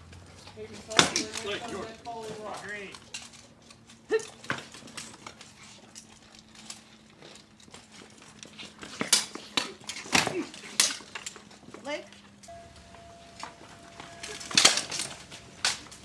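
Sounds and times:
swords clashing on armor: 0.9 - 1.9.

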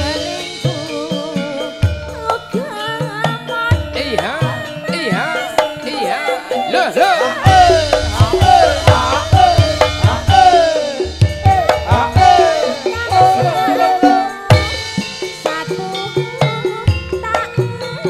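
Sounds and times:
gamelan music: 0.0 - 18.0
hand drumming: 0.0 - 18.0.

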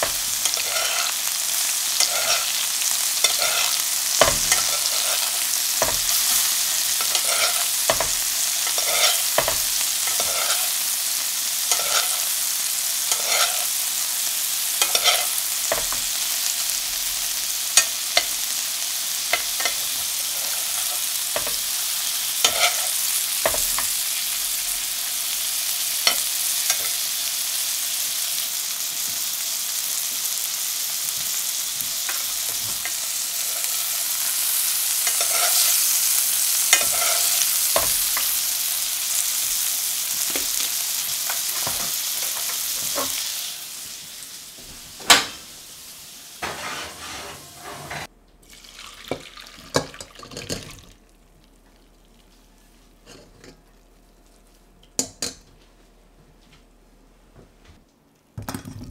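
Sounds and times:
meat sizzling in butter: 0.0 - 47.0.

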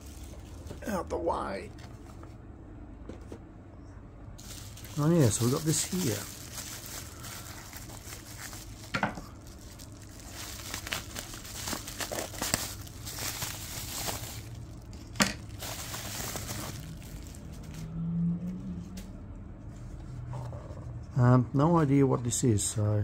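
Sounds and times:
bubble wrap crinkling: 0.0 - 1.0, 4.4 - 17.9.

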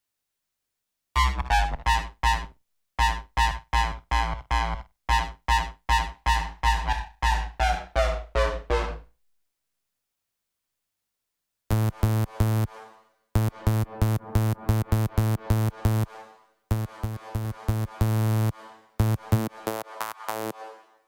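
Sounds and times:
buzzy synthesizer bass notes: 6.6 - 9.0, 11.7 - 12.7, 13.4 - 16.1, 16.7 - 20.6.

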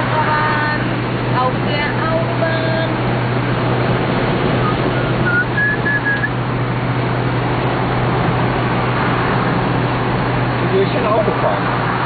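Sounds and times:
car engine drone: 0.0 - 12.0
road and wind noise: 0.0 - 12.0
high whistled notes: 4.6 - 6.3.

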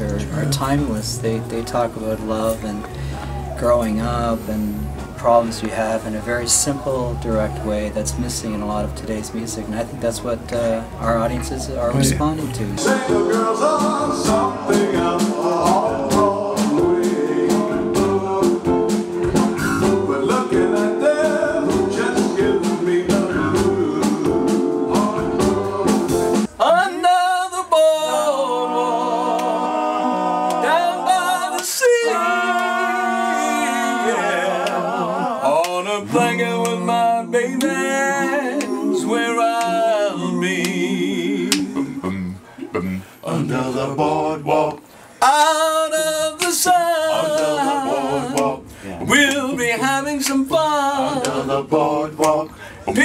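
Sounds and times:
male vocal group singing: 0.0 - 53.0
live band with drumbeat: 12.8 - 26.5.

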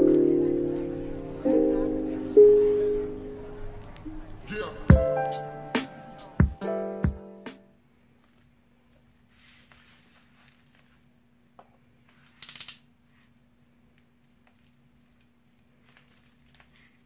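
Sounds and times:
bubble wrap crinkling: 9.2 - 11.1, 14.1 - 17.0.

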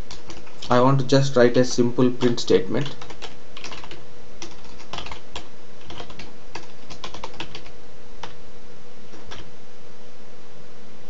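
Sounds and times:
computer keyboard typing: 0.0 - 0.8, 2.2 - 8.4, 9.1 - 9.5.

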